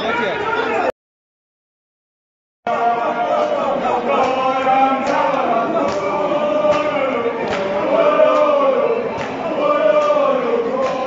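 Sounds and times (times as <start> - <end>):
group singing a chant: 2.7 - 11.0.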